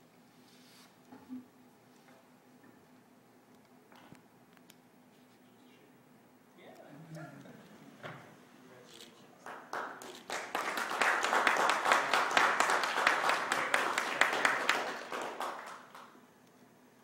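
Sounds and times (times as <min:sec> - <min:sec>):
audience applauding: 0:09.4 - 0:16.2.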